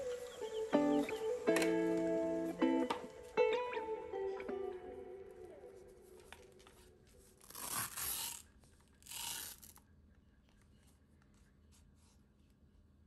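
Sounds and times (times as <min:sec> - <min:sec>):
hook-and-loop fastener ripping: 0:06.2 - 0:10.7.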